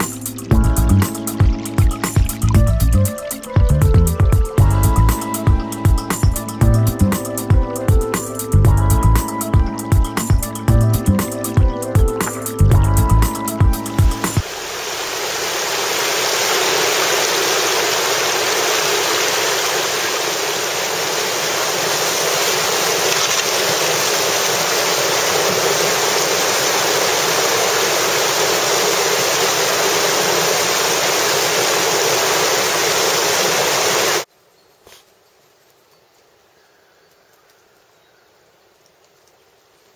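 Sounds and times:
river water rushing: 14.1 - 34.3.

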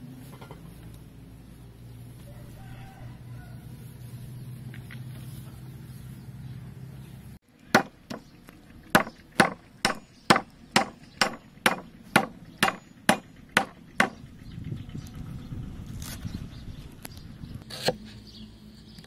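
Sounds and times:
cleaver chopping on wooden board: 7.7 - 8.3, 8.9 - 14.2.

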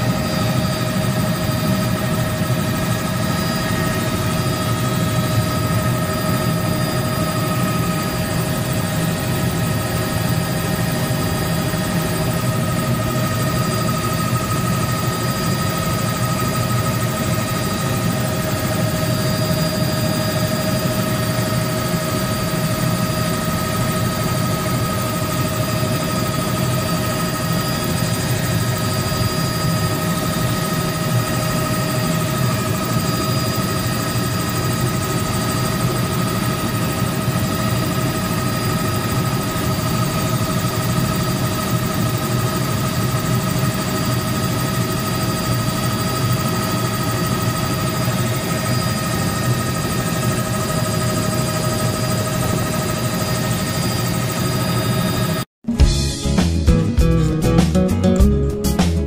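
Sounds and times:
high whine: 0.0 - 43.8
helicopter rotor and engine drone: 0.0 - 55.5.

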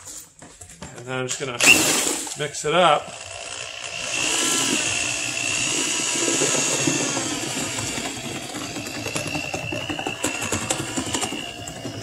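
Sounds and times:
electric drill motor whine: 3.0 - 12.0
slurry churning: 3.0 - 12.0.

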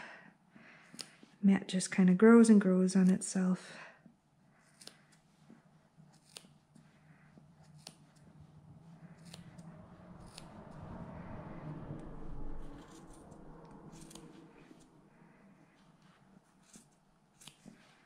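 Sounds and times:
scissors snipping wool: 0.8 - 1.2, 4.6 - 8.4, 9.0 - 9.6, 10.2 - 10.5, 13.9 - 14.8, 16.4 - 18.0
rustle of handled wool: 13.9 - 18.0.

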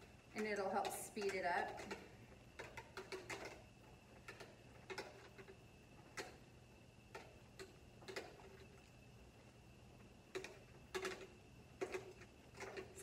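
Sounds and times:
golf balls rolling in metal pan: 0.0 - 9.0, 10.0 - 13.0.

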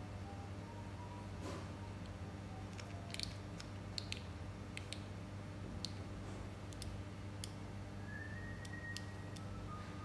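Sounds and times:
steady low hum: 0.0 - 10.0
small plastic clicks: 2.7 - 5.1.

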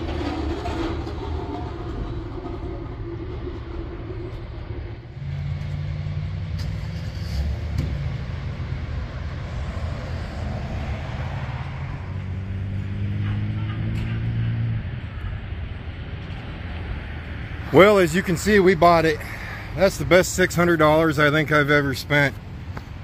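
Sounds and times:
vehicle engine running: 0.0 - 9.7
deep steady engine hum: 0.0 - 23.0
road traffic noise: 0.0 - 23.0.

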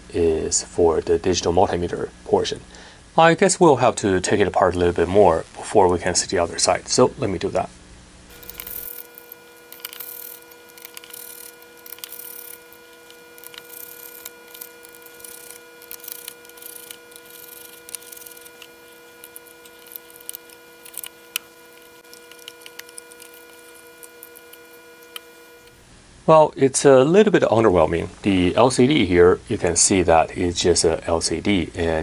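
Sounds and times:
faint hum: 0.0 - 26.8
screwdriver and plastic clicks: 8.3 - 25.8.

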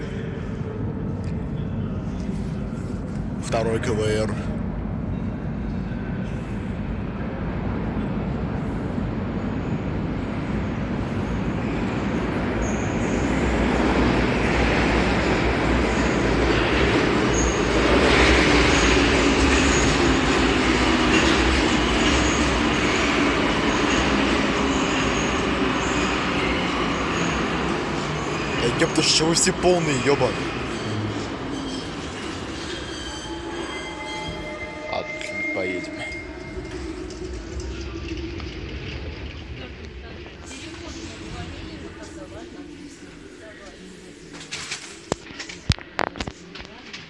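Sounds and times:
metro train rumbling: 0.0 - 47.0
train hum: 0.0 - 47.0
high wheel squeals: 17.2 - 20.6, 21.2 - 38.3.

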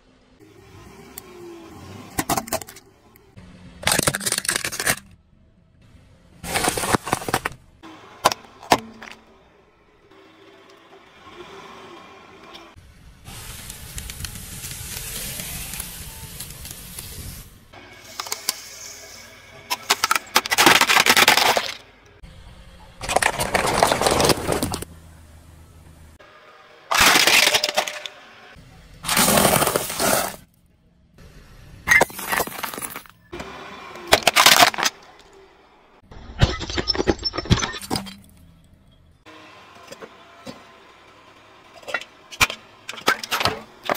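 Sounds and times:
car tyre crushing small objects: 2.1 - 2.9, 3.8 - 5.2, 6.4 - 9.5, 19.7 - 22.2, 22.9 - 24.9, 26.9 - 28.2, 29.0 - 30.6, 31.9 - 33.4, 34.1 - 35.4, 41.7 - 43.9.

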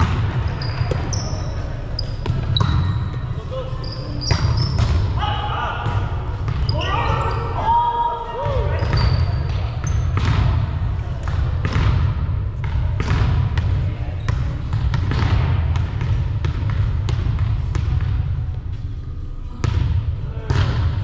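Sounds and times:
volleyballs smacking and bouncing: 8.4 - 18.4.

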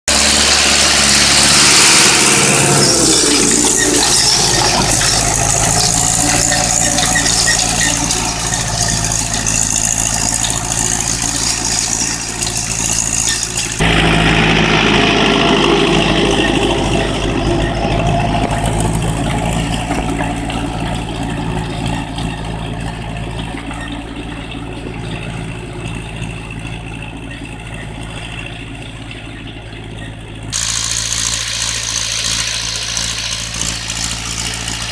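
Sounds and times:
tractor diesel engine under load: 0.0 - 34.9.

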